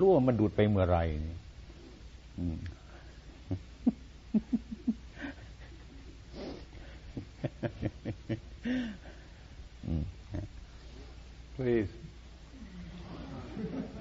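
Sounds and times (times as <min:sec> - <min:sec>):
person making quick vocal sounds: 0:02.4 - 0:02.8.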